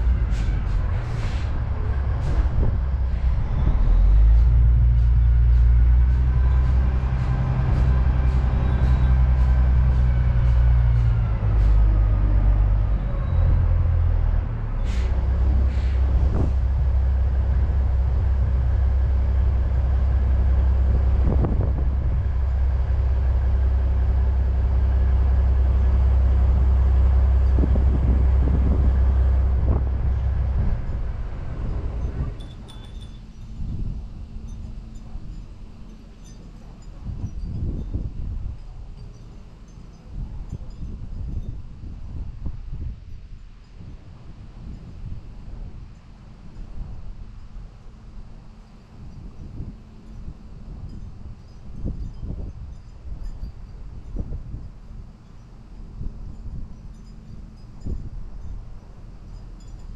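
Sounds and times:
truck diesel engine running: 0:00.0 - 0:36.6.

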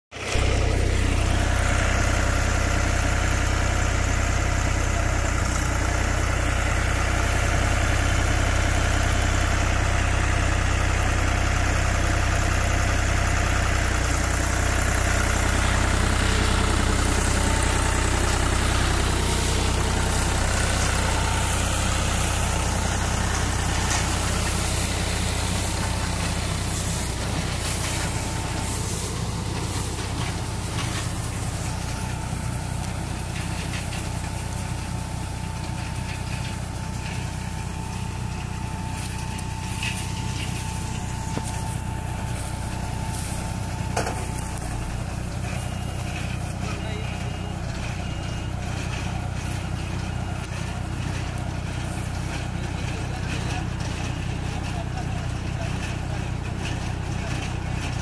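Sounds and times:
tractor diesel engine running: 0:00.1 - 0:58.0
baler picking up straw: 0:15.2 - 0:38.0, 0:38.6 - 0:47.2.

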